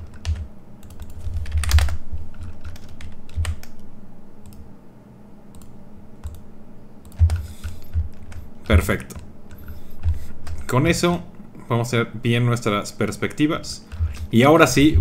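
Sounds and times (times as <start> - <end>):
keyboard and mouse clicks: 0.0 - 4.6, 5.5 - 6.4, 7.0 - 10.6
dull low thumps: 14.0 - 15.0.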